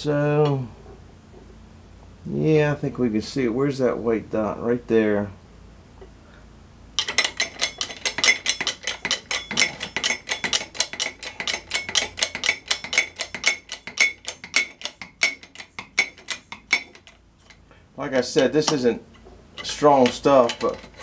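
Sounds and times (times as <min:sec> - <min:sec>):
hammer tapping steel rod: 0:07.0 - 0:17.2.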